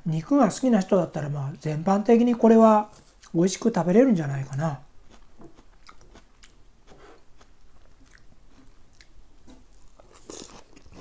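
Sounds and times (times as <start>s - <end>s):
person chewing with crunches: 5.0s - 11.0s
person taking a bite: 5.1s - 11.0s.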